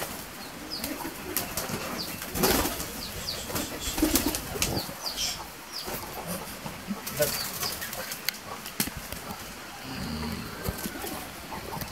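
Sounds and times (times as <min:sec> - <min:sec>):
pigeon wings flapping: 0:00.0 - 0:05.0.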